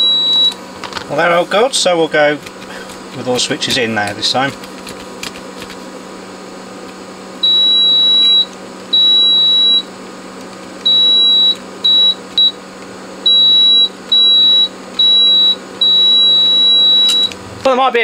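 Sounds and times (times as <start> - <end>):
multimeter continuity beeps: 0.0 - 0.6, 7.4 - 9.9, 10.8 - 12.6, 13.2 - 17.4.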